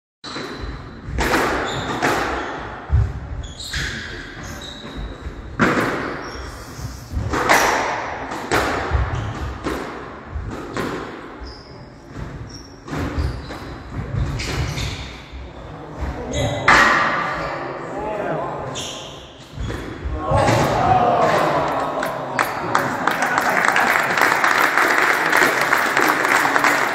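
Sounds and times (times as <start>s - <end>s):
squash ball strikes: 0.4s - 3.2s, 7.1s - 11.2s
shoes squeaking on wooden floor: 3.3s - 7.0s, 11.4s - 15.2s.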